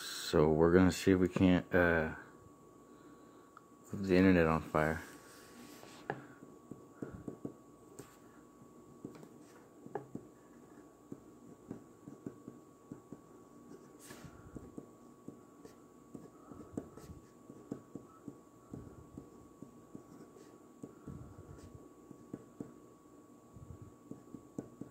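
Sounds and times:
pen scratching on paper: 9.1s - 20.9s.

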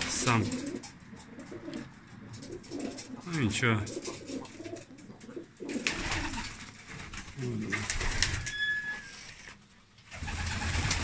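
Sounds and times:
pigeons cooing: 0.0s - 8.5s.

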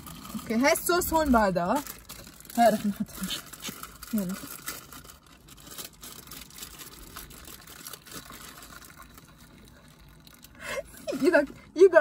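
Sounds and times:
hot water pouring into a bowl: 7.0s - 11.4s
woman laughing: 10.7s - 11.5s.

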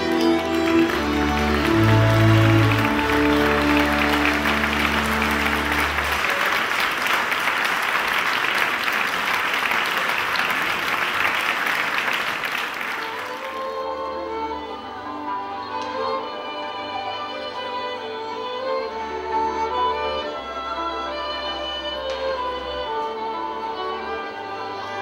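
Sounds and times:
fiddle music: 0.0s - 6.8s, 13.0s - 25.0s
music with held notes: 0.0s - 6.8s, 13.0s - 25.0s
audience applauding: 0.0s - 13.8s.

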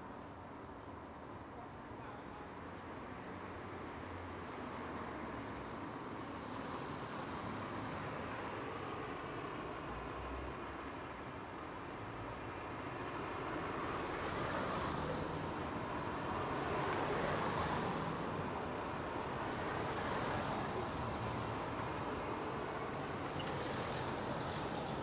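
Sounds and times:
hiss of passing cars: 6.0s - 10.7s, 12.7s - 25.0s.

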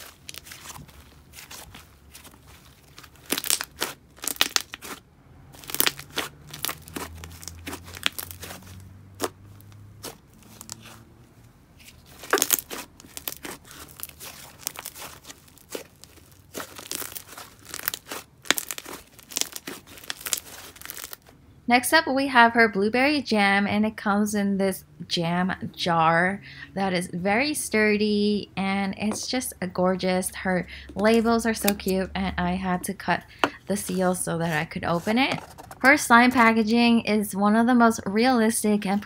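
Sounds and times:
slime popping and crackling: 0.0s - 5.0s, 5.6s - 11.0s, 12.0s - 21.3s.

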